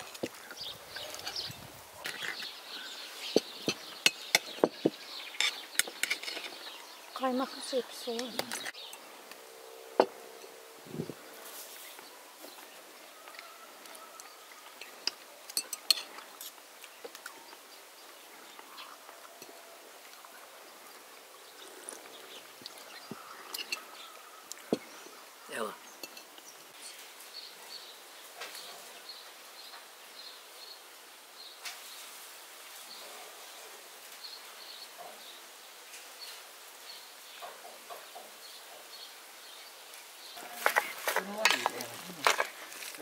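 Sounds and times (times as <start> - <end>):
spoon scraping in metal pot: 5.3 - 6.7.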